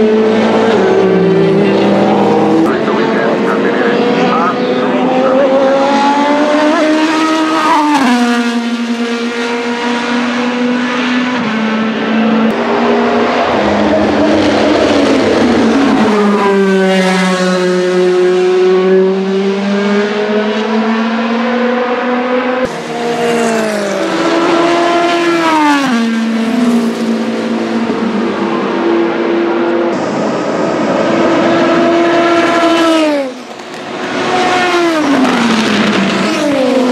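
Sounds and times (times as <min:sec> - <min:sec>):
racing car engine at high revs: 0:00.0 - 0:36.9.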